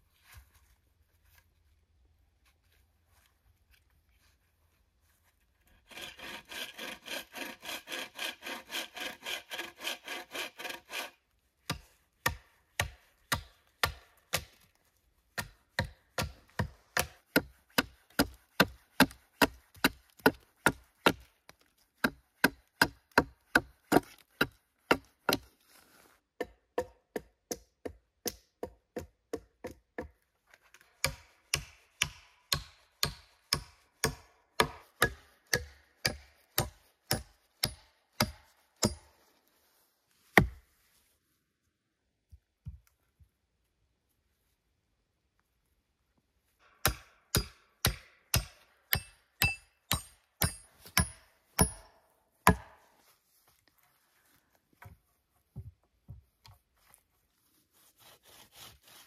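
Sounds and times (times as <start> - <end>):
hand saw cutting wood: 5.7 - 14.6, 15.4 - 21.3, 22.0 - 25.5, 31.0 - 39.1, 46.8 - 52.8, 57.7 - 59.0.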